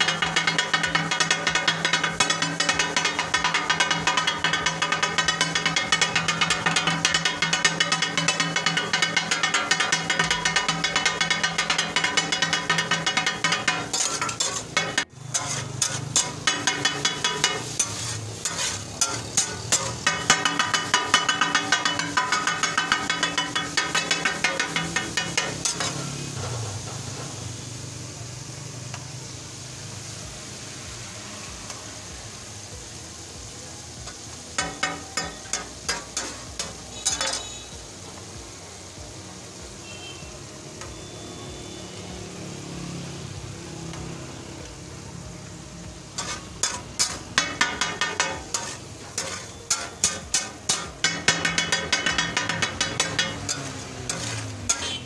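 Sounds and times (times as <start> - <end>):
metal spatulas chopping on griddle: 0.0 - 27.1, 34.0 - 37.6, 46.1 - 55.0
food sizzling: 0.0 - 55.0.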